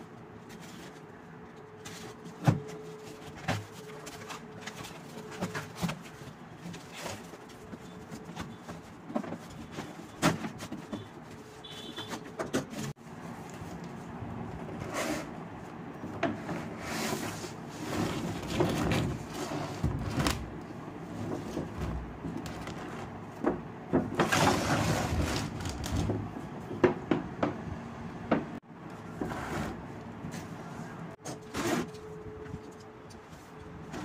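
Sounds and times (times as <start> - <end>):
cardboard box rustling and scraping: 16.3 - 20.5, 24.2 - 26.1, 31.3 - 32.0.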